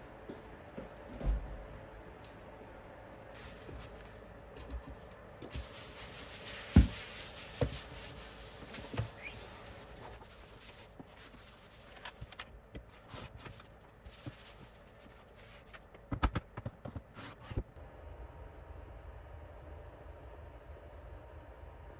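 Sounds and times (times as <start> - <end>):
tissue rubbing on desk: 5.5 - 15.8
objects knocking on desk: 6.7 - 7.0.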